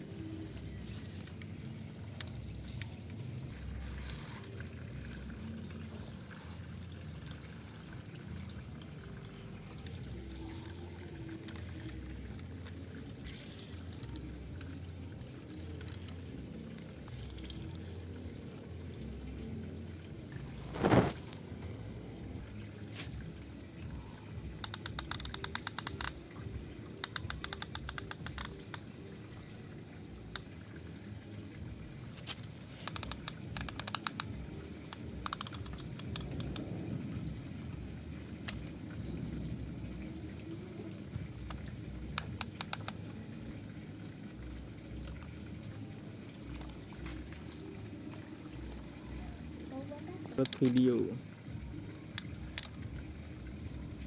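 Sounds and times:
plastic winch clicking: 17.1s - 17.8s, 24.5s - 26.2s, 27.0s - 28.9s, 32.8s - 36.7s, 41.4s - 43.0s, 50.4s - 51.0s, 52.1s - 52.8s.

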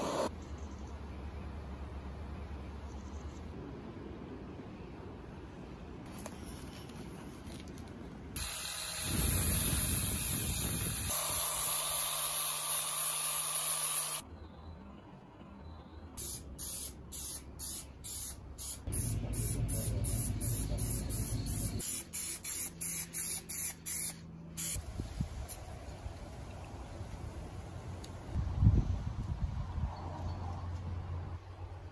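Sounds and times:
spray paint can hissing: 8.4s - 14.2s, 16.2s - 24.8s.

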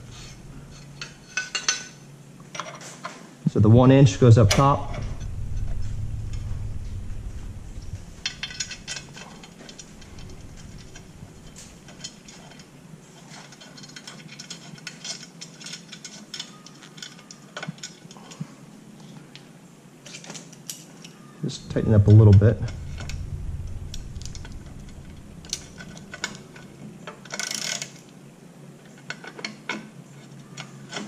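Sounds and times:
low rumble: 0.0s - 1.1s, 3.5s - 13.0s, 21.5s - 27.3s
small metal clicks and clinks: 11.5s - 18.4s, 20.0s - 21.2s.

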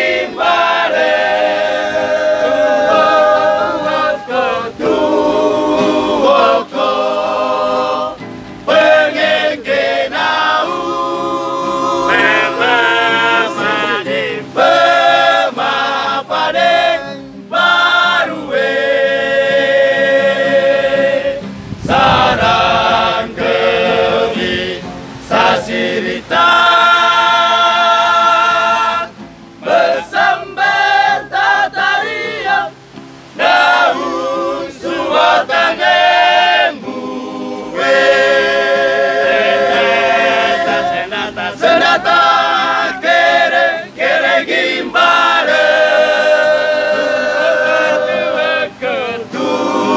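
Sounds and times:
group singing in chorus: 0.0s - 49.9s.

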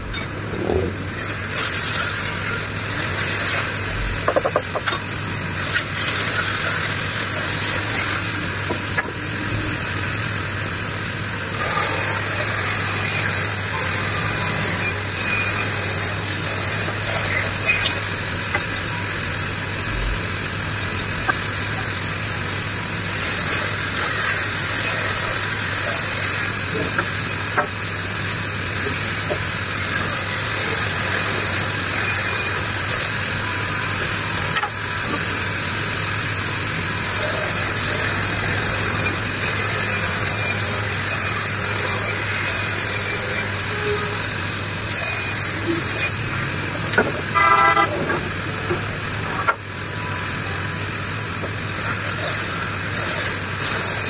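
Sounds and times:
band saw motor hum: 0.0s - 54.0s
saw blade cutting wood: 11.6s - 19.0s, 37.1s - 44.2s, 44.9s - 46.2s, 47.0s - 48.8s, 51.8s - 54.0s.

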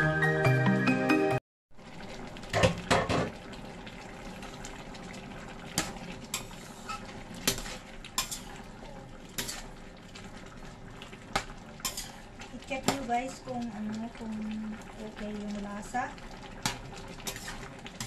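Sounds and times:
spatula scraping metal pan: 6.3s - 8.5s, 9.4s - 9.7s, 11.8s - 12.2s, 17.2s - 17.6s.

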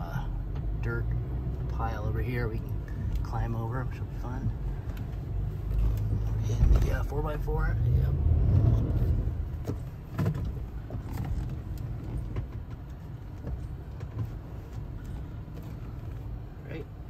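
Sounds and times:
low engine rumble: 0.0s - 17.0s
light knocks and rattles: 8.6s - 16.4s.

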